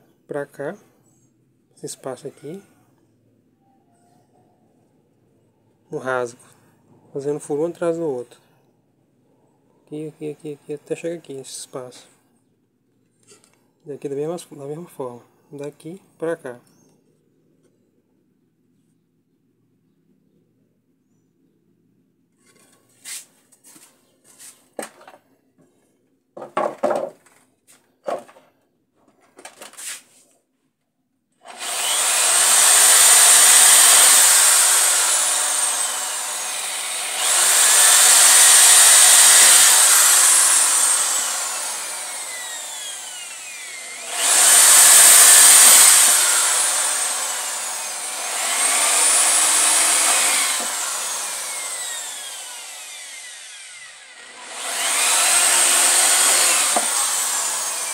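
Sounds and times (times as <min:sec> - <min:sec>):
electric drill boring into wood: 0:31.4 - 0:57.9.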